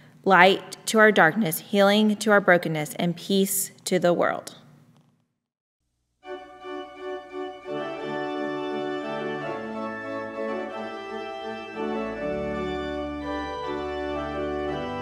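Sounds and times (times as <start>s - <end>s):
organ music: 6.2s - 15.0s.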